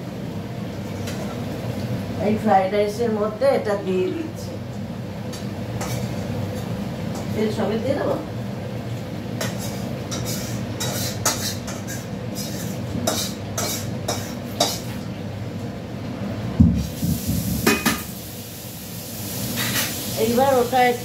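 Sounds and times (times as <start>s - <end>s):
metal spoon scraping in pot: 9.4s - 14.9s.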